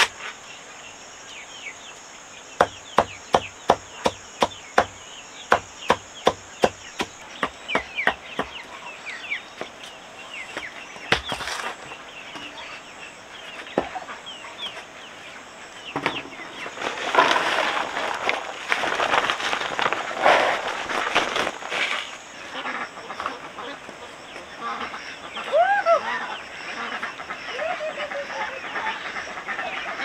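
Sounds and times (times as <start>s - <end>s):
insects buzzing: 0.0s - 30.0s
blade chopping: 2.6s - 8.2s
chickens clucking: 2.6s - 18.5s, 21.8s - 30.0s
rustling: 16.4s - 22.3s.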